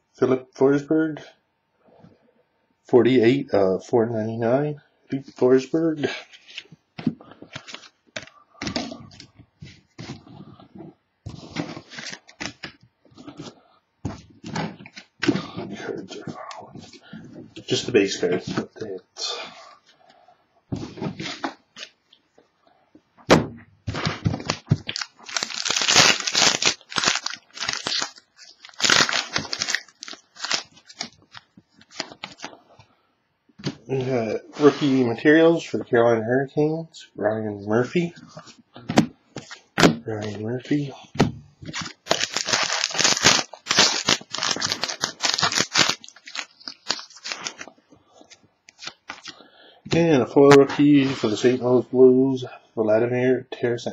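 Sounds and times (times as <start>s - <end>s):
wrapper crinkling and tearing: 11.5s - 12.7s, 24.4s - 32.5s, 41.7s - 47.7s, 48.7s - 49.4s
cards rustling and ticking: 24.0s - 32.6s, 41.7s - 49.4s.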